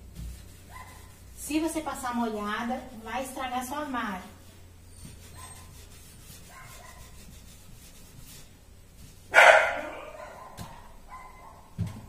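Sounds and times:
dog barking: 0.7s - 1.0s, 6.5s - 7.1s, 9.3s - 11.7s.

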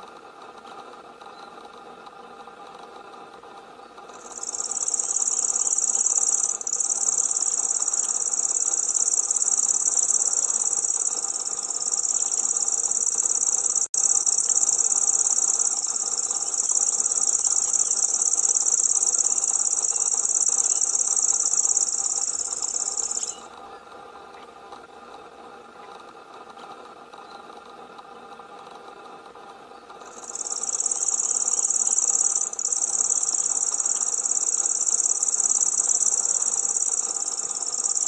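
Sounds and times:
bird reeling trill: 4.1s - 23.5s, 30.0s - 38.0s.

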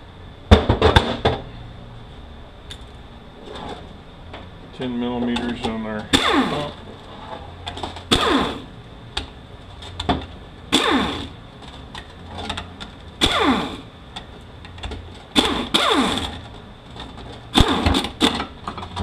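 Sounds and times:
air ratchet whirring: 6.1s - 6.8s, 8.1s - 8.7s, 10.7s - 11.4s, 13.2s - 13.9s, 15.3s - 16.4s, 17.5s - 18.4s.

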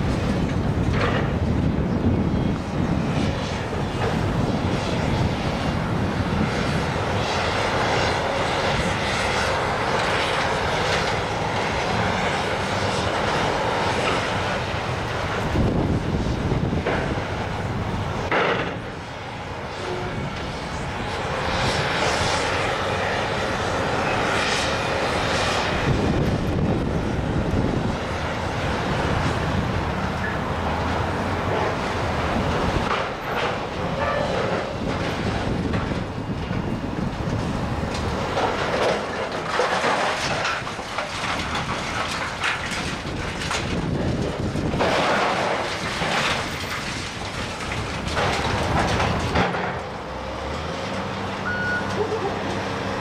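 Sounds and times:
heavy machinery running: 0.0s - 53.0s
debris crunching and scraping: 37.1s - 51.0s.

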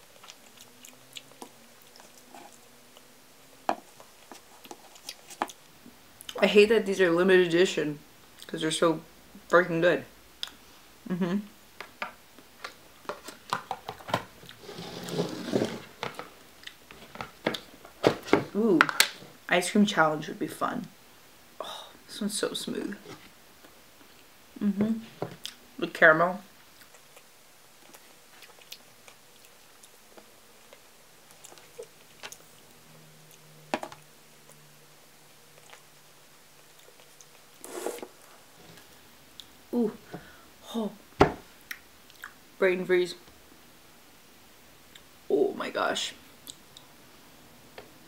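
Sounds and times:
scraping rustle: 14.6s - 16.3s.

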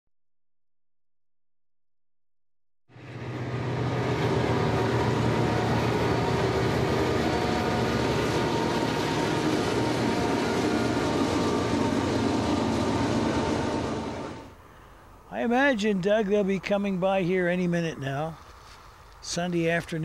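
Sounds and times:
freight train passing: 2.9s - 18.4s.

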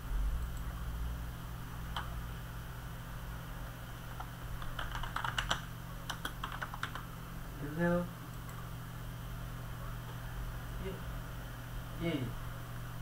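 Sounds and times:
steady low hum: 0.0s - 13.0s
keyboard key clicks: 4.6s - 7.0s.

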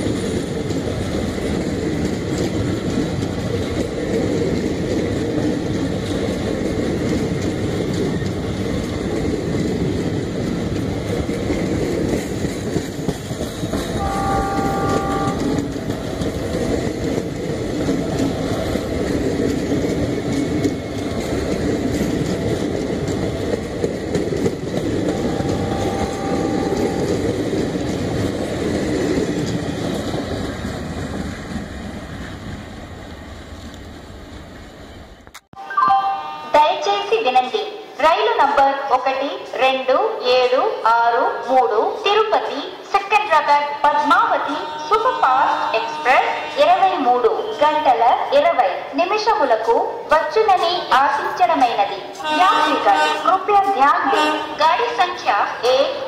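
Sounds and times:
train wheels clattering on rails: 0.0s - 35.3s
distant train horn: 13.9s - 15.8s, 25.0s - 27.4s, 44.2s - 47.8s, 52.2s - 54.6s.

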